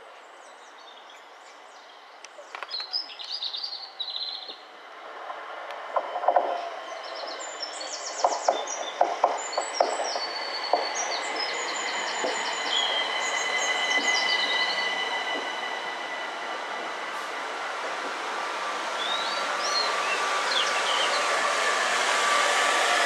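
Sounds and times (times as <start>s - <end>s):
train high whine: 3.8s - 23.0s
train wheels clicking over rail joints: 5.8s - 23.0s.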